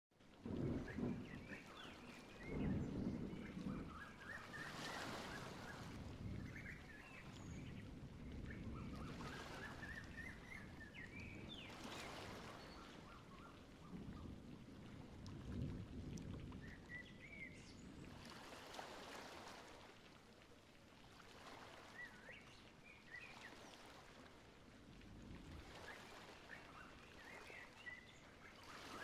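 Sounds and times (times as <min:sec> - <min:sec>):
faint birds chirping: 0:00.6 - 0:14.5, 0:25.6 - 0:29.0.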